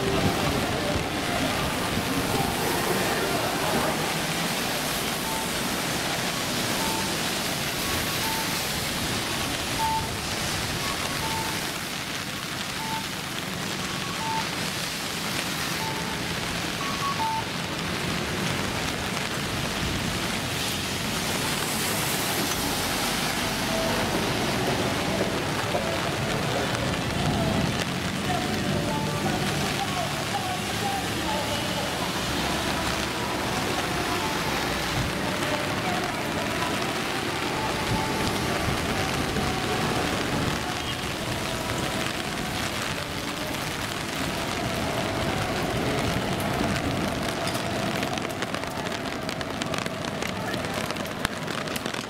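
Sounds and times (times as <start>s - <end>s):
passing traffic: 0.0s - 52.0s
rain falling on city street: 0.0s - 52.0s
short electronic beeps: 6.8s - 7.1s, 8.2s - 8.6s, 9.8s - 10.2s.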